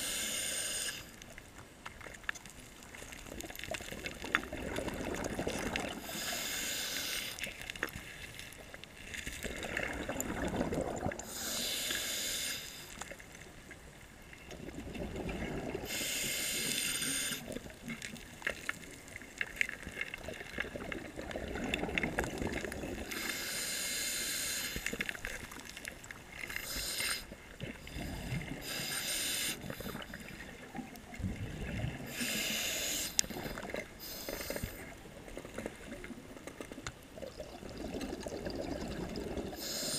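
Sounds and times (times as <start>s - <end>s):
regulator hiss: 0.0s - 1.2s, 6.0s - 7.5s, 11.3s - 13.0s, 15.9s - 17.5s, 23.1s - 25.0s, 26.5s - 27.3s, 28.6s - 30.2s, 32.1s - 34.9s, 39.6s - 39.9s
exhaled bubbles: 3.2s - 6.4s, 9.3s - 11.5s, 14.5s - 16.7s, 20.1s - 23.2s, 33.4s - 39.9s.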